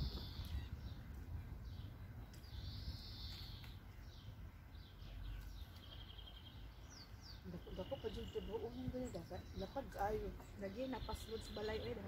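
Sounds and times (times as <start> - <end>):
songbirds whistling: 0.0 - 12.0.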